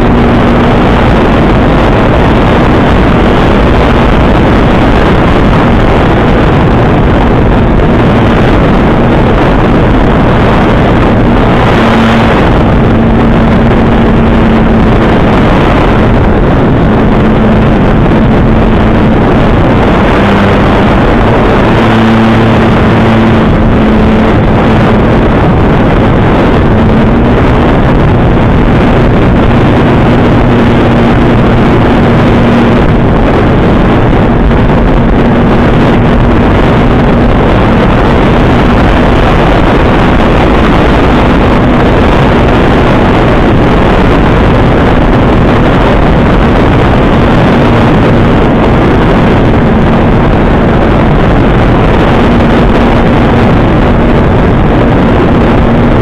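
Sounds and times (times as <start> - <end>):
aircraft engine and propeller drone: 0.0 - 56.0
rushing air: 0.0 - 56.0.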